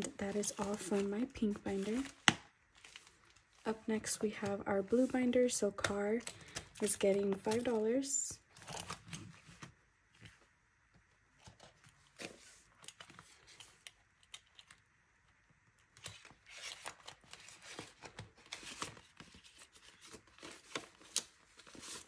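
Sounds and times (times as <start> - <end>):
paper bills rustling: 0.0 - 3.5
plastic envelopes crinkling: 0.0 - 4.3.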